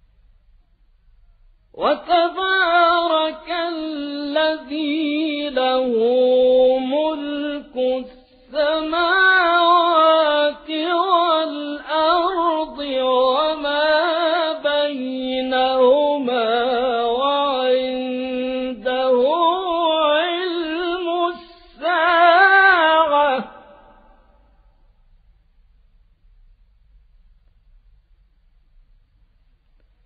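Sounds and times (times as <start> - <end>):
man chanting melodically: 1.8 - 24.4.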